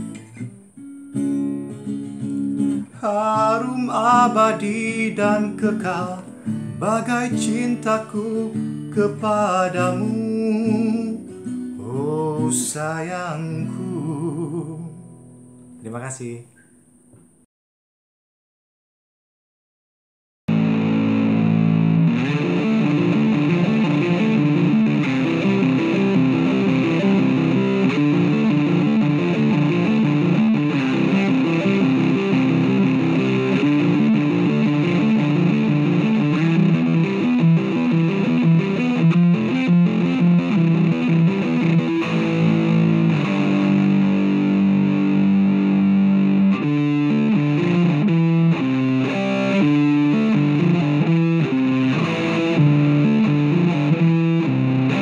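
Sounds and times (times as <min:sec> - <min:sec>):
electric bass guitar fingerstyle: 0:20.5 - 0:55.0.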